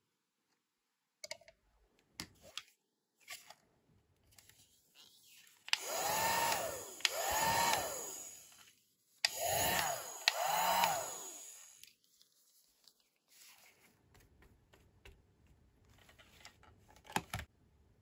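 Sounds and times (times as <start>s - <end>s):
toy hair dryer whirring: 5.7s - 11.9s.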